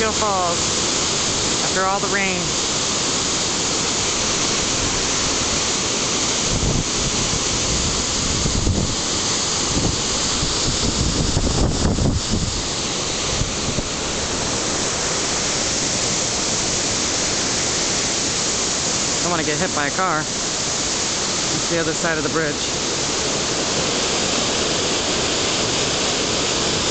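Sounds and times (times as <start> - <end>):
waterfall rushing over rocks: 0.0 - 26.9
wind buffeting microphone: 6.4 - 14.6.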